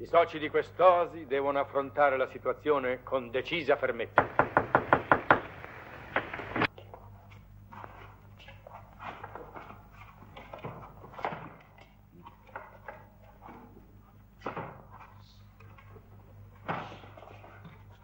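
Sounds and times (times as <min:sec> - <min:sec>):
low film soundtrack hum: 0:04.1 - 0:06.7
loud knocks or bumps: 0:04.2 - 0:06.7.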